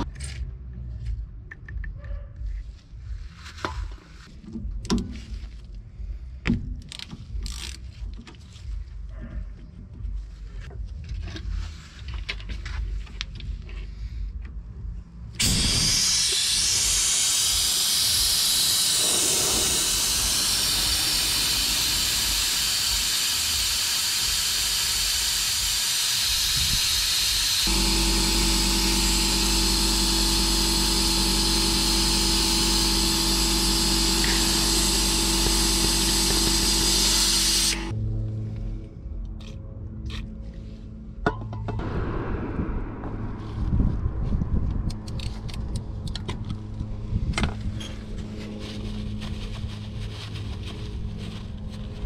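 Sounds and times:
steady motor hum: 0:14.8 - 0:38.0
loud spray hiss: 0:15.4 - 0:37.9.

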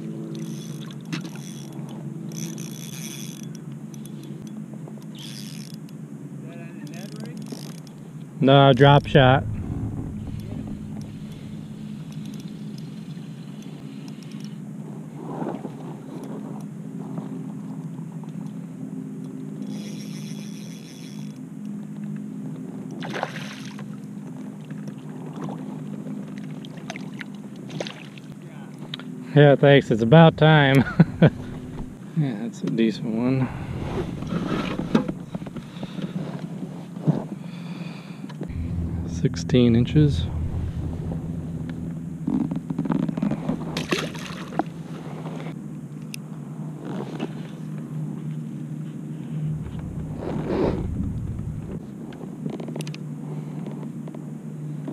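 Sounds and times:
steady low hum: 0:08.4 - 0:14.3, 0:30.0 - 0:32.1, 0:33.1 - 0:36.2, 0:37.4 - 0:45.6, 0:48.9 - 0:52.2
brief high whir: 0:08.8 - 0:12.1, 0:33.4 - 0:35.4, 0:38.5 - 0:43.8, 0:49.4 - 0:51.9
water splashing and sloshing: 0:24.6 - 0:28.3, 0:40.4 - 0:45.6
fish splashing at the surface: 0:43.8 - 0:44.7.

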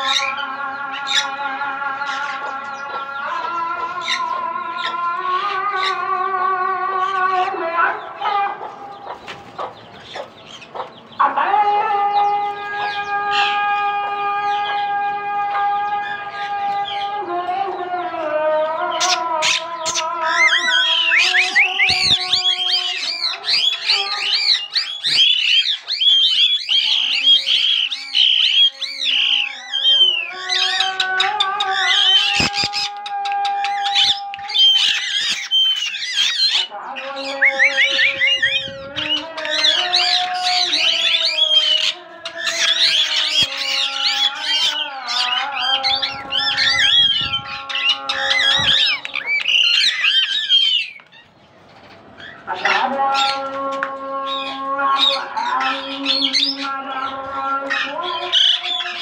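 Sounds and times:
small parrots chattering: 0:19.0 - 0:51.3.

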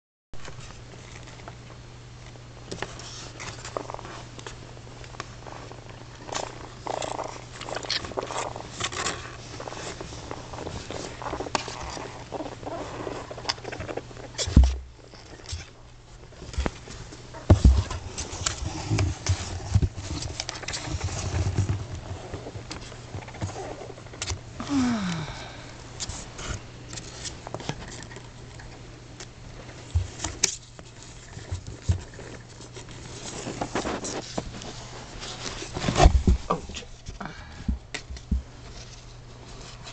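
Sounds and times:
steady low hum: 0:00.4 - 0:39.9
claws scratching on cardboard: 0:17.5 - 0:24.3, 0:29.9 - 0:36.9.

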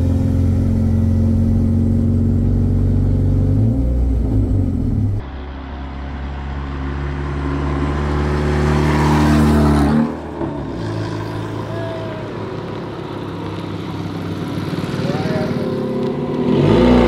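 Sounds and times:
car driving past: 0:03.7 - 0:17.0.

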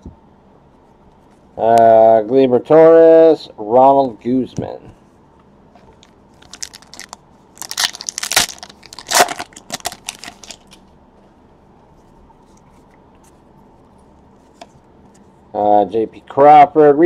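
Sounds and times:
foil wrapper crinkling: 0:05.9 - 0:10.8.

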